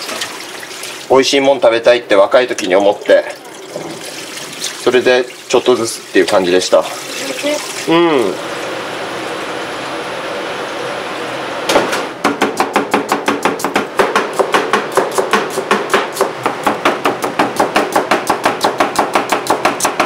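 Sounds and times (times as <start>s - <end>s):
knife chopping on wooden board: 11.8s - 20.0s.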